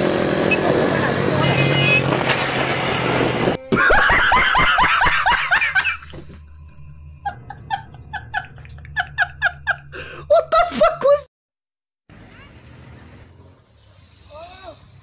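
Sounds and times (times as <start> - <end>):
man chuckling: 3.7 - 6.3
man laughing hard: 3.7 - 6.3, 7.2 - 11.3.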